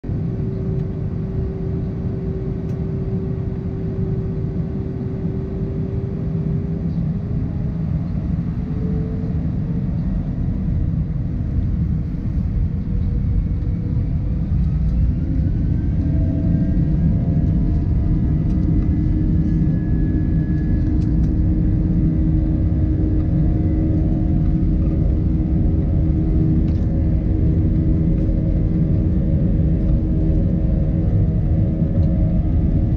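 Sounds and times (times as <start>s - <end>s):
airplane cabin rumble: 0.0s - 32.9s
jet engines humming: 0.0s - 32.9s.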